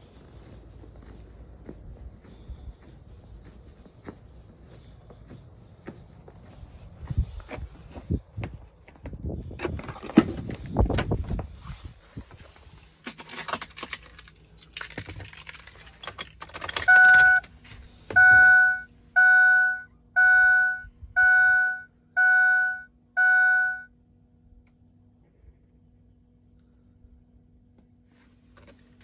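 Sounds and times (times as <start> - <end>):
faint steady hum: 10.3 - 29.0
car warning chime: 16.8 - 17.5, 18.1 - 23.9.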